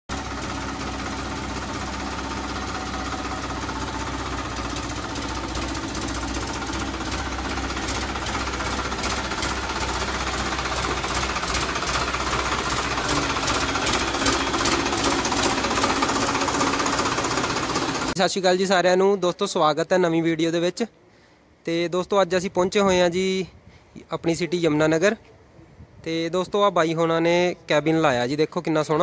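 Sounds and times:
tractor diesel engine knocking: 0:00.1 - 0:18.2.

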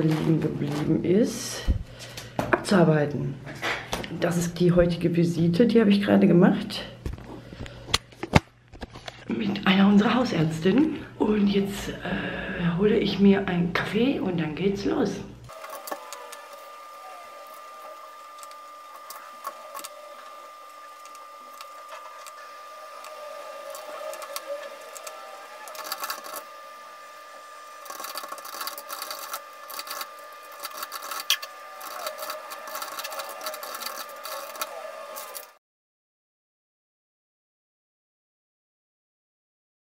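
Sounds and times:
steady hum: 0:06.5 - 0:35.6
paper handling: 0:15.5 - 0:35.6.

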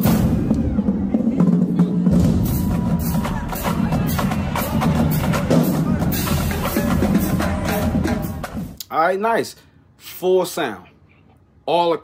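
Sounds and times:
bass drums: 0:00.0 - 0:08.8
snare and tenor drums: 0:00.0 - 0:08.8.

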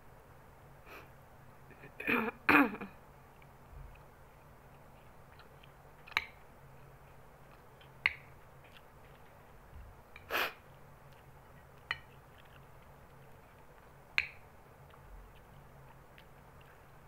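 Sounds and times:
person sniffing: 0:00.8 - 0:01.1, 0:10.3 - 0:10.6.

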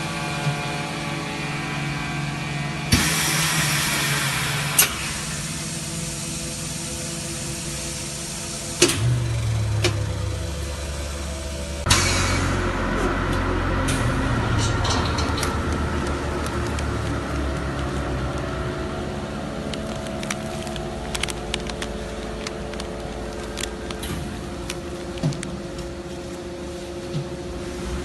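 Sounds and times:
vacuum packing machine humming: 0:00.0 - 0:28.0
plastic bag crinkling: 0:15.2 - 0:26.9.

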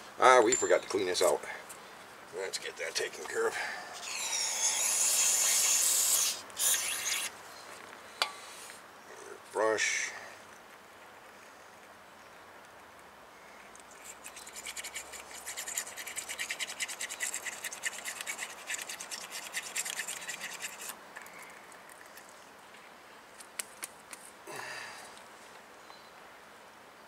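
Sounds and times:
brush scrubbing metal bore: 0:14.0 - 0:21.0.

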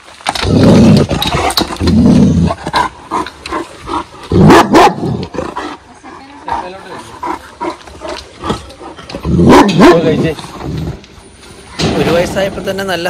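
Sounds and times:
dog barking deeply: 0:04.3 - 0:05.4, 0:09.3 - 0:10.2.

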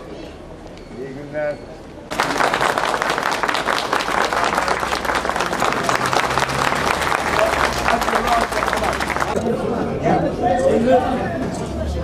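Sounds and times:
crowd applauding: 0:02.1 - 0:09.4.

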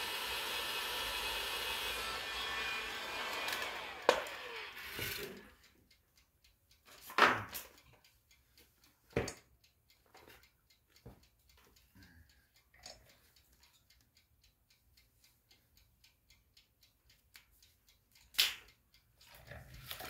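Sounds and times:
small electric motor whirring: 0:00.0 - 0:05.7.

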